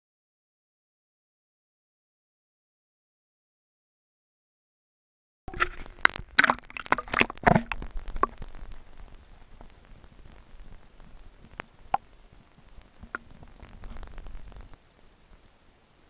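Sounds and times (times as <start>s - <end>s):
water splashes and knocks: 5.5s - 8.4s
muffled underwater noise: 5.5s - 16.0s.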